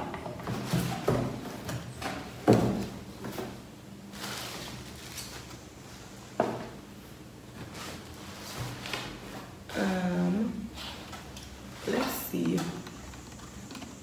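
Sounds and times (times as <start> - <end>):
cardboard rustling and scraping: 7.5 - 9.6.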